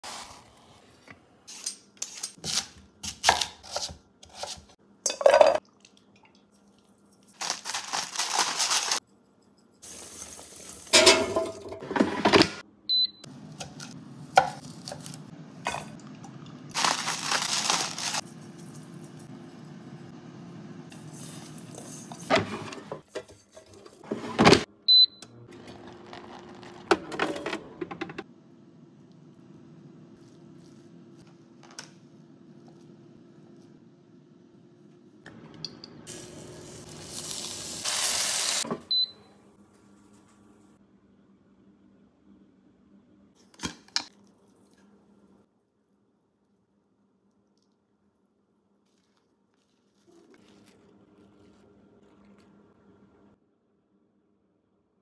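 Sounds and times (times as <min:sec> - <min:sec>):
metal pots and utensils clinking: 0:05.0 - 0:05.6, 0:10.9 - 0:12.4.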